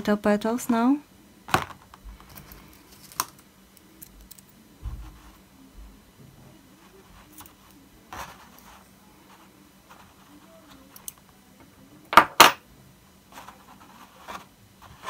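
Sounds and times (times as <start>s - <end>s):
sharp knocks on a tabletop: 12.1s - 12.6s.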